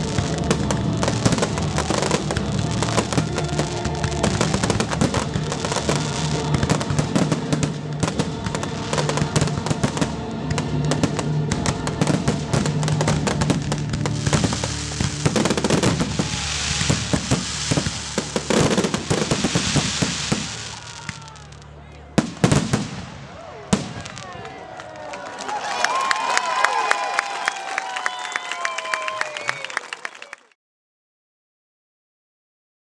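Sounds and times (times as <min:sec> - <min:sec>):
music playing: 0:00.0 - 0:22.8
fireworks hissing crackle: 0:00.0 - 0:24.4.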